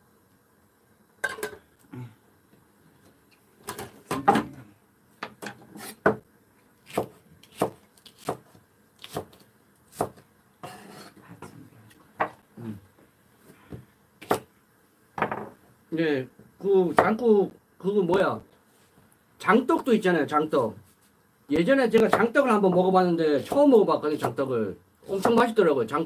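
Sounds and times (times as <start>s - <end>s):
knife chopping on wooden board: 6.8s - 11.0s, 13.7s - 14.5s, 25.2s - 25.4s.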